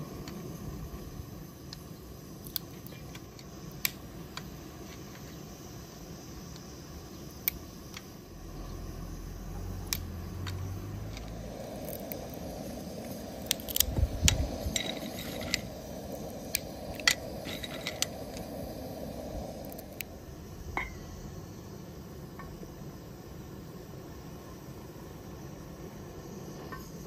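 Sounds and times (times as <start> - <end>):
nutcracker cracking nutshells: 9.9 - 12.5, 13.4 - 18.5.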